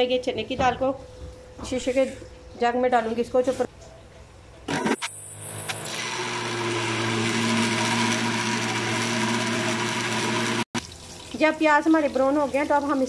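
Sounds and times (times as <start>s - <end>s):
blender grinding: 4.7s - 10.8s.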